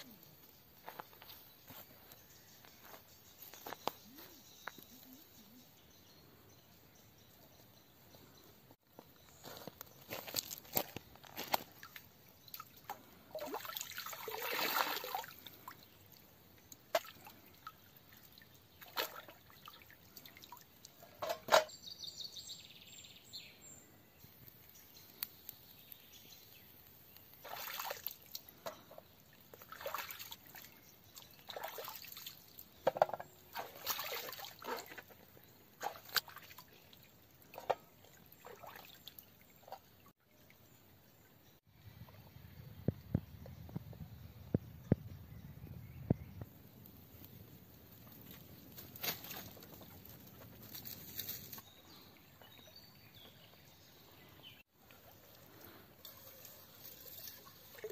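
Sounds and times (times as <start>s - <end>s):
stream water splashing: 11.4s - 21.4s, 27.3s - 28.5s, 29.5s - 40.1s, 55.1s - 57.9s.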